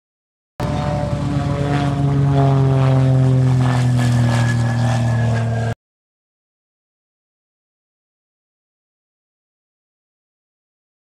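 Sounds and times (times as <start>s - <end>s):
propeller airplane flying past: 0.6s - 5.8s.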